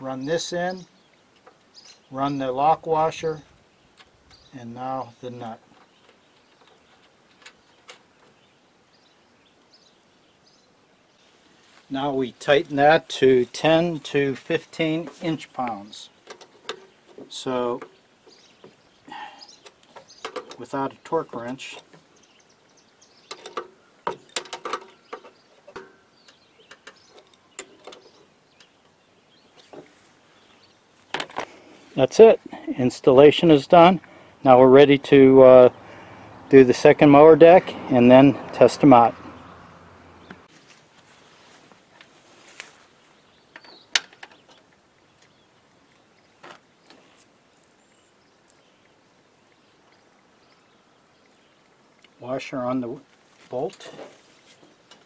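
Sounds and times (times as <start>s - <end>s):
metal fitting clicking and clinking: 23.3s - 28.2s.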